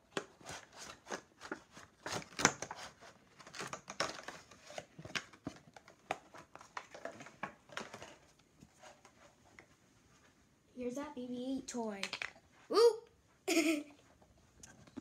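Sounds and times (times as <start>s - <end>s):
plastic packaging crinkling: 0.2s - 8.4s.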